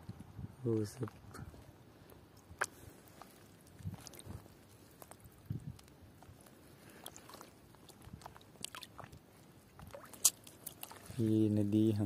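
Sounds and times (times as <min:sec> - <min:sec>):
water splashing: 0:02.5 - 0:05.5, 0:06.3 - 0:11.5.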